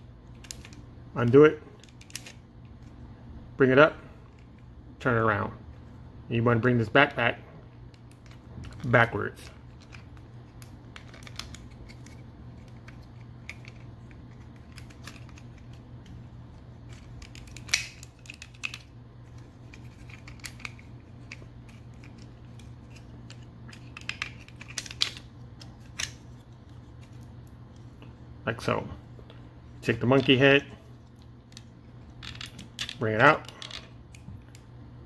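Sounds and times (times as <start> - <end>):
low steady hum: 0.0 - 35.0
plastic toy parts clicking and snapping: 0.4 - 2.4, 9.7 - 16.2, 16.9 - 26.2, 31.5 - 34.6.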